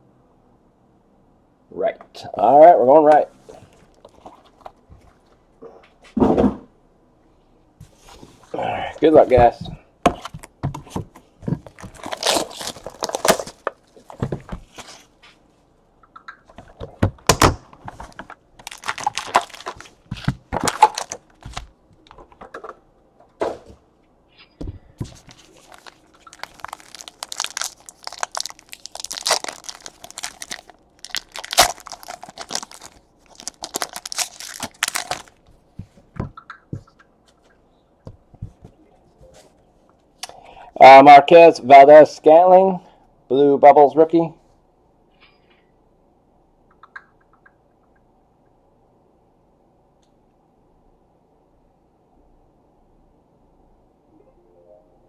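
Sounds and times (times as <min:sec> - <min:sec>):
wrappers tearing and crinkling: 0:11.7 - 0:15.0, 0:17.9 - 0:21.7, 0:25.2 - 0:35.4.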